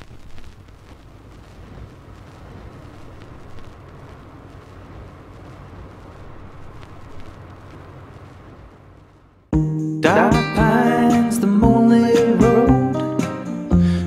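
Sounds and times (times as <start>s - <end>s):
faint ticks: 0.0s - 9.2s.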